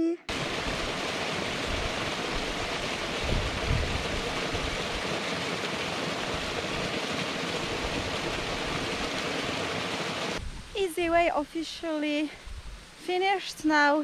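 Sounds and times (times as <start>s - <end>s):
waterfall splashing into pool: 0.3s - 10.4s.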